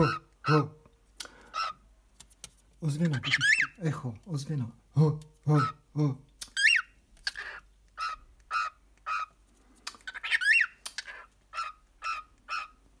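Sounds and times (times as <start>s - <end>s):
cockatiel chirping: 3.1s - 3.8s, 6.5s - 9.3s, 9.9s - 12.8s.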